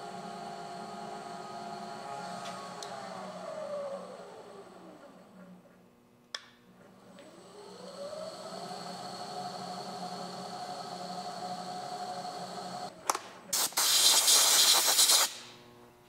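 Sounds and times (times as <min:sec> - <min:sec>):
spindle motor running: 0:00.0 - 0:05.8, 0:06.7 - 0:13.0.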